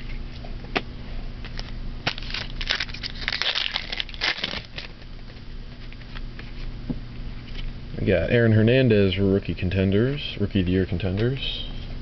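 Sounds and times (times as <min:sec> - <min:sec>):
plastic wrapper crinkling: 0:01.5 - 0:05.1.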